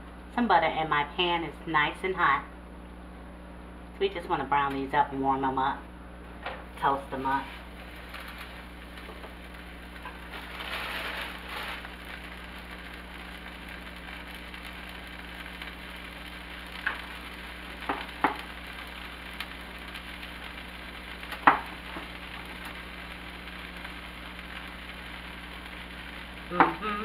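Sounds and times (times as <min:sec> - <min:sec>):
butter sizzling in a frying pan: 0:06.6 - 0:27.0.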